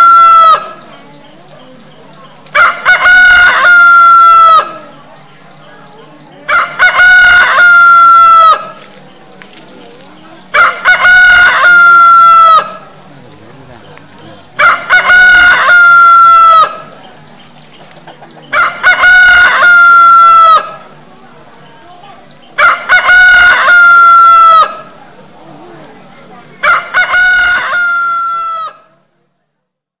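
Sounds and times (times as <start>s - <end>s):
rooster crowing: 0.0s - 0.8s, 2.6s - 4.8s, 6.5s - 8.8s, 10.6s - 12.8s, 14.6s - 16.9s, 18.5s - 20.8s, 22.6s - 24.9s, 26.6s - 28.9s.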